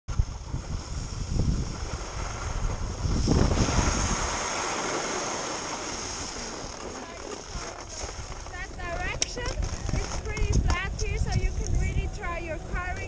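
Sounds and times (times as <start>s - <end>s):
steady hiss: 0.1s - 8.4s
wind buffeting microphone: 0.1s - 13.0s.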